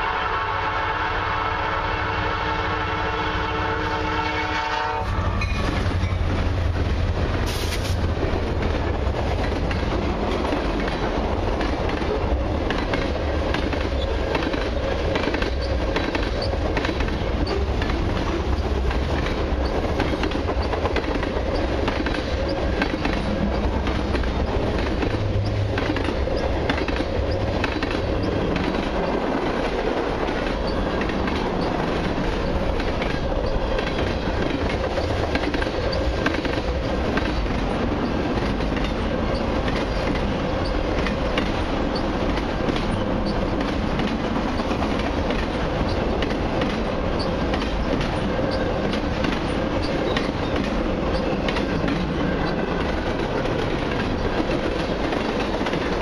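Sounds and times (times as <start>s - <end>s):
train horn blast: 0.0s - 5.5s
diesel locomotive engine rumble: 0.0s - 56.0s
train wheels clickety-clack: 2.0s - 56.0s.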